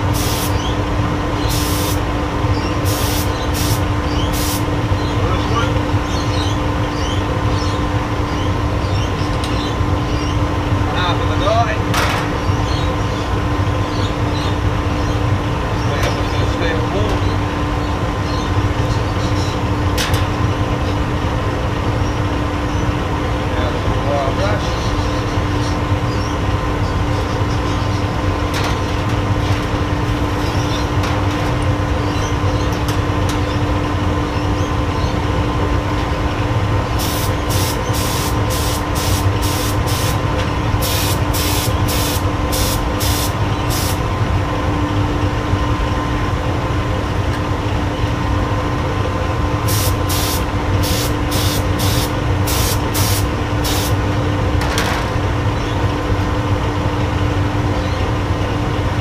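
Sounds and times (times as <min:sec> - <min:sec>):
spray gun hissing bursts: 0:00.0 - 0:00.7, 0:01.4 - 0:02.1, 0:02.8 - 0:04.7, 0:37.0 - 0:40.2, 0:40.8 - 0:44.0, 0:49.7 - 0:54.0
furnace noise with hum: 0:00.0 - 0:59.0.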